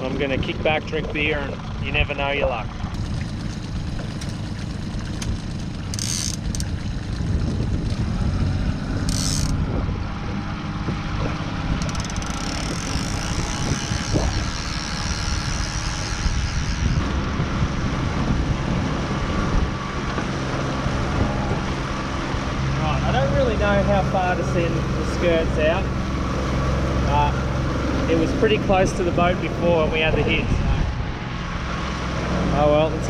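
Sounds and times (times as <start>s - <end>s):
outboard motor running: 0.0s - 33.0s
fishing reel clicker ratcheting: 5.2s - 6.7s, 9.0s - 9.6s, 11.8s - 17.1s.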